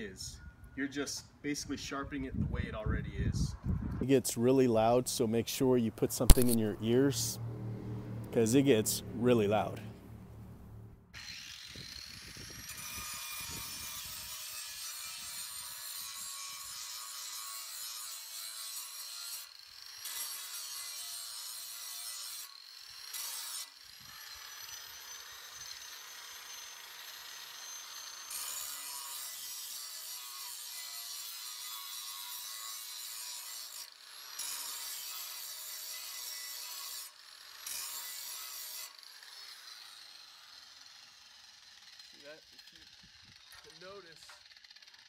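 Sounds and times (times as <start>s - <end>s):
angle grinder motor whine: 11.2s - 13.8s
grinding disc rasping on metal: 11.9s - 19.4s.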